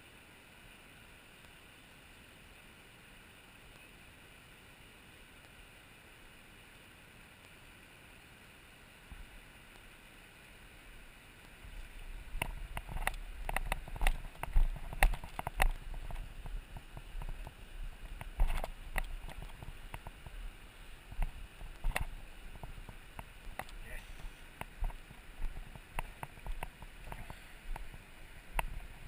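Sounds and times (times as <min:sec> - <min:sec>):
river rushing: 0:00.0 - 0:29.0
footsteps on stones and water: 0:11.5 - 0:29.0.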